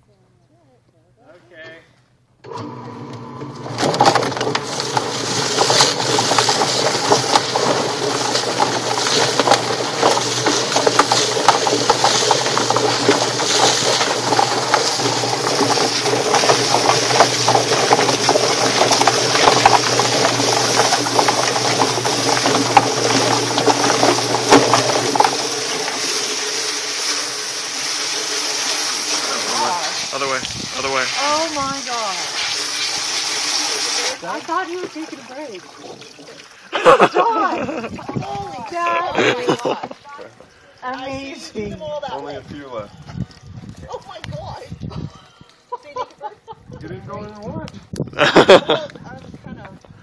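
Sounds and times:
motor humming: 0:02.4 - 0:39.8
hose spraying water: 0:02.5 - 0:44.7, 0:48.2 - 0:48.8
chicken rattling in plucker: 0:03.8 - 0:35.0.

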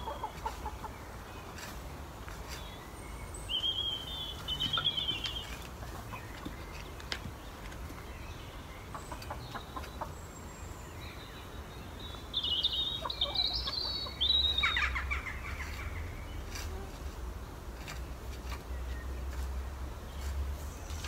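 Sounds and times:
garden fork scraping straw: 0:00.0 - 0:07.2, 0:15.1 - 0:21.0
bird chirping and trilling: 0:02.6 - 0:07.0, 0:08.0 - 0:16.5.

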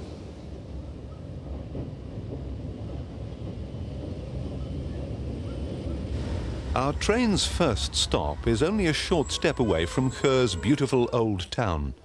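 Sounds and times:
electric train rumbling: 0:00.0 - 0:12.0.

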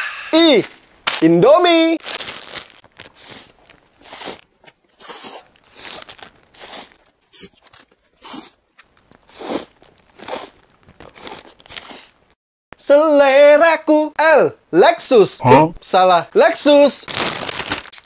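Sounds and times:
plastic packet tearing: 0:02.0 - 0:12.1, 0:17.0 - 0:18.0
slurping and chewing noodles: 0:03.2 - 0:08.6, 0:09.2 - 0:12.2.

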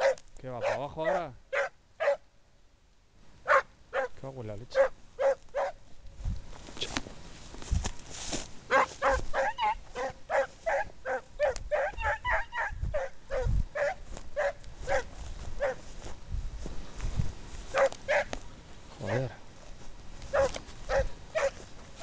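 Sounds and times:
hound baying: 0:00.0 - 0:02.2, 0:03.5 - 0:05.8, 0:08.7 - 0:15.8, 0:17.7 - 0:18.4, 0:19.0 - 0:19.4, 0:20.3 - 0:21.6.

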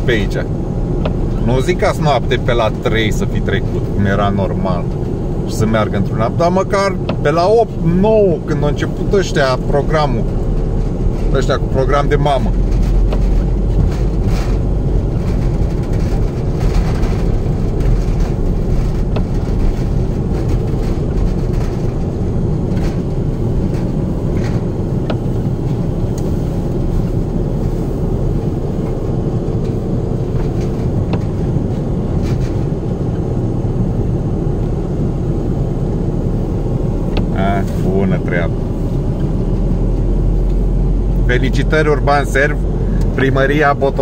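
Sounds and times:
car engine and tyre rumble: 0:00.0 - 0:44.0
faint clicks and knocks: 0:09.6 - 0:33.4.

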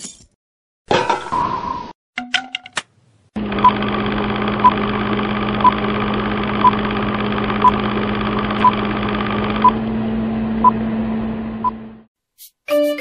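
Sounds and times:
film projector whirring: 0:03.4 - 0:12.1.

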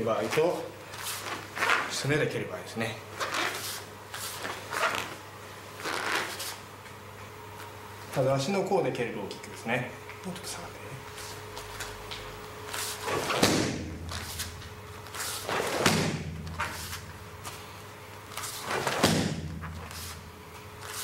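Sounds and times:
swish of kicking leg: 0:12.7 - 0:17.1, 0:18.4 - 0:20.2
kicks thudding into kick pad: 0:13.1 - 0:14.1, 0:15.5 - 0:16.6, 0:18.8 - 0:19.8.

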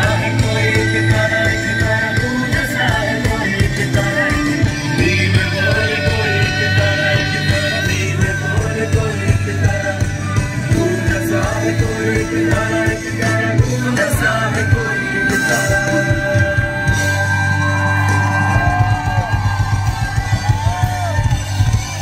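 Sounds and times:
people singing: 0:00.0 - 0:17.4
bass and electric guitar: 0:00.0 - 0:22.0
drums: 0:00.0 - 0:22.0.

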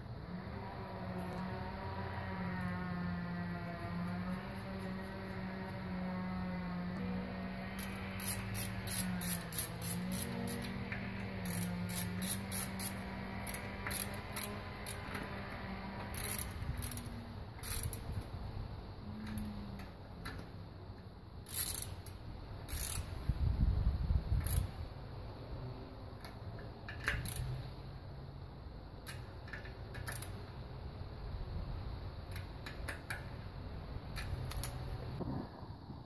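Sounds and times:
ratchet wrench clicking: 0:07.7 - 0:18.3, 0:21.4 - 0:23.2, 0:24.4 - 0:24.8, 0:26.2 - 0:27.6, 0:29.0 - 0:30.5, 0:32.2 - 0:33.4, 0:34.1 - 0:35.0.

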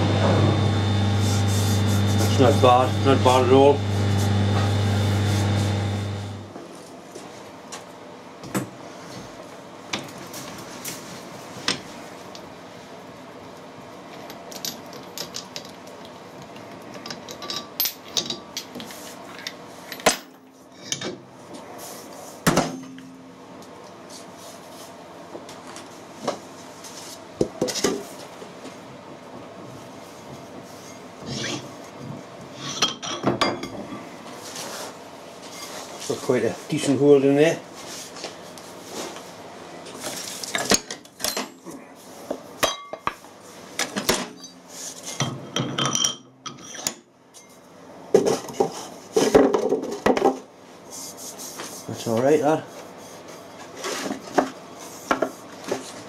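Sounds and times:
metal lathe humming: 0:00.0 - 0:06.5.

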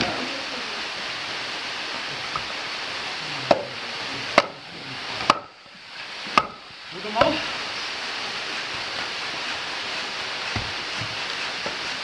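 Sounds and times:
axe striking log: 0:05.2 - 0:05.5, 0:06.4 - 0:06.6.

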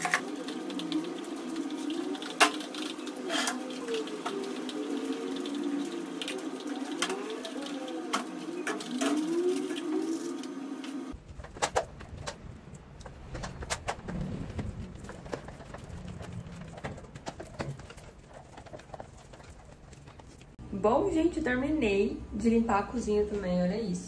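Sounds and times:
pigeon cooing: 0:00.2 - 0:10.5.

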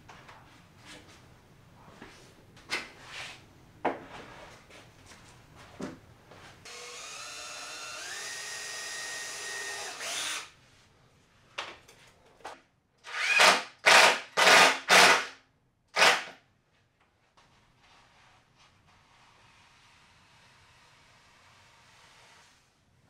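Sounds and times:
cordless drill running: 0:06.7 - 0:10.5, 0:13.1 - 0:15.2
drill driving screws into plywood: 0:06.7 - 0:10.5, 0:13.0 - 0:15.3, 0:16.0 - 0:16.3.

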